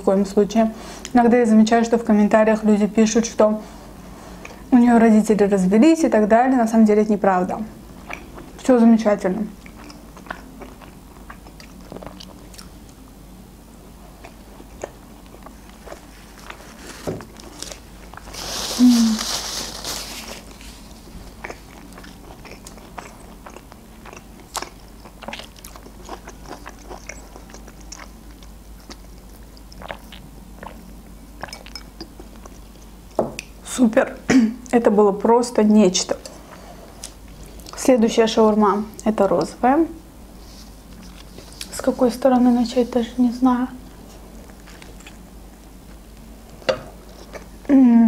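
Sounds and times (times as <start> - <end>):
person chewing food: 7.9 - 8.6, 9.6 - 13.1, 14.0 - 18.4, 20.4 - 33.6, 40.4 - 41.7, 43.9 - 47.6.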